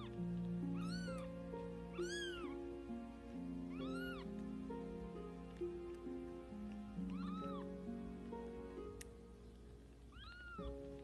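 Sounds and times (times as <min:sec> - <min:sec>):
kitten meowing: 0:00.0 - 0:01.3, 0:01.9 - 0:02.6, 0:03.7 - 0:04.3, 0:07.0 - 0:07.7, 0:10.1 - 0:10.8
background music with held notes: 0:00.0 - 0:11.0.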